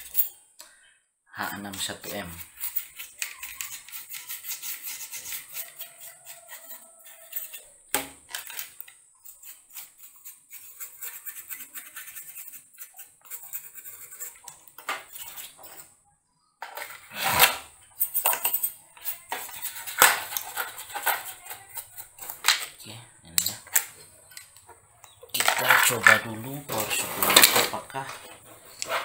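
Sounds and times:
knocks and rattles of handling: 1.6 - 4.3, 5.3 - 9.0, 14.2 - 16.0, 16.6 - 29.0
brush scrubbing circuit board: 1.7 - 7.7, 9.2 - 14.5, 18.0 - 22.3.

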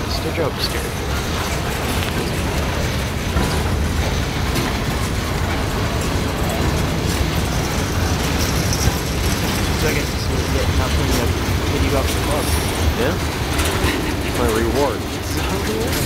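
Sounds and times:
train wheels rumbling on track: 0.0 - 16.0.

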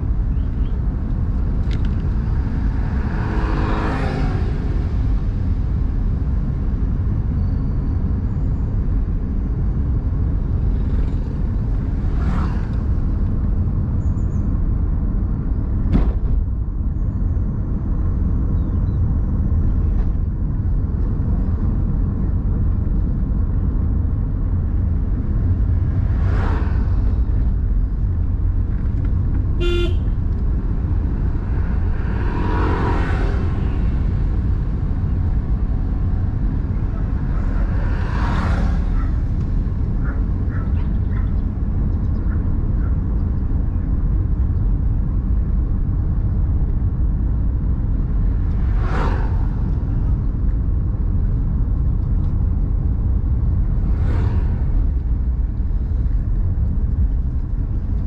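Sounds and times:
car driving on paved road: 0.0 - 58.0
car horn honking: 29.6 - 30.2.

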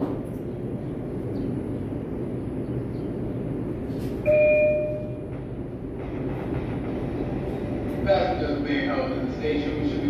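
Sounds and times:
low hum of standing train: 0.0 - 10.0
subway door chime: 4.0 - 5.6.

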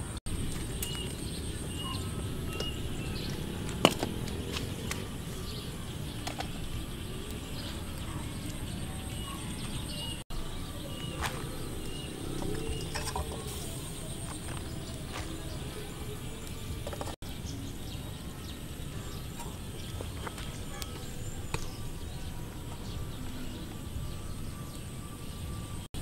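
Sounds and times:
bird chirping: 0.0 - 26.0.

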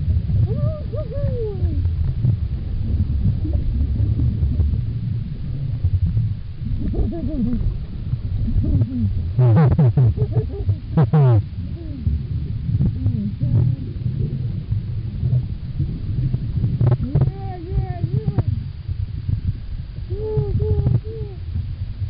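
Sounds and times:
low underwater rumble: 0.0 - 22.0
gliding underwater calls: 0.1 - 5.7, 6.6 - 16.0.

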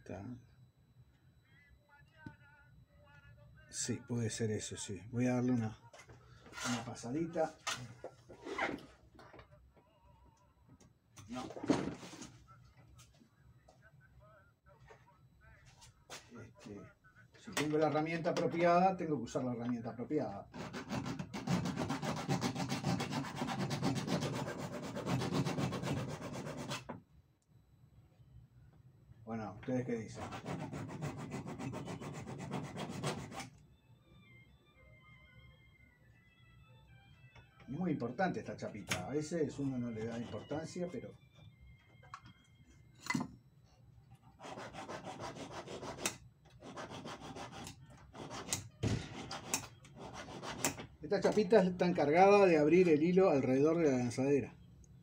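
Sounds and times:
abrasive rubbing on metal part: 6.5 - 7.0.

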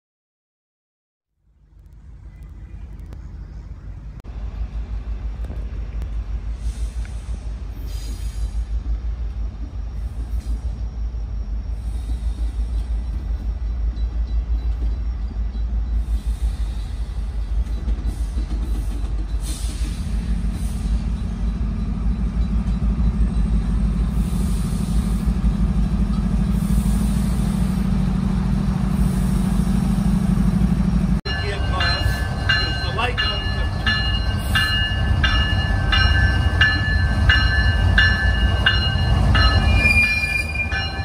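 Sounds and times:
deep diesel rumble: 1.3 - 10.9, 19.4 - 39.9.

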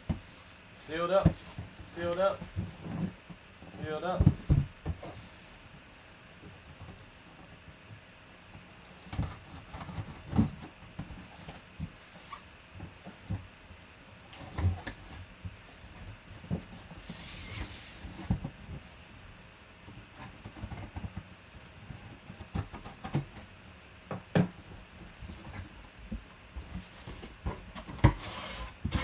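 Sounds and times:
cardboard scraping: 0.1 - 3.2, 26.6 - 29.0.

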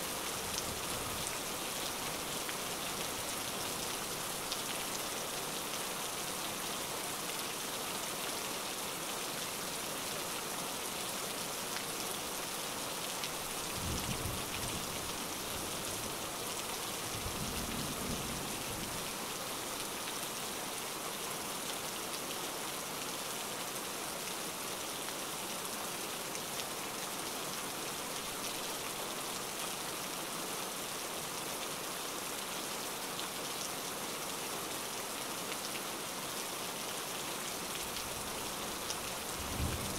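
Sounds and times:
steady rain falling: 0.0 - 39.9
low thunder rumbles: 39.4 - 39.9.

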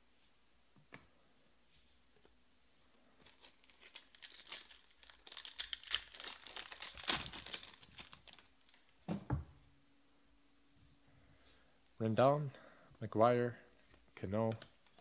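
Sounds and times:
foil wrapper crinkling and tearing: 3.2 - 8.9.

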